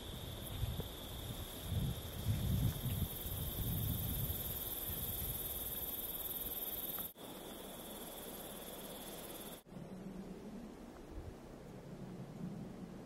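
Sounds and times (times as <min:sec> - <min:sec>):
wind gusting against microphone: 0:00.0 - 0:06.6
high-pitched insect drone: 0:00.0 - 0:09.6.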